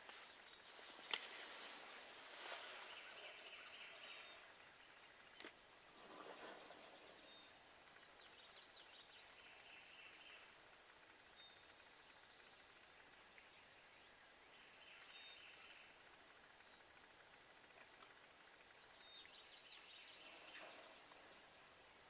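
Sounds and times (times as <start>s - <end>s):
faint songbird chirps: 0.0s - 22.0s.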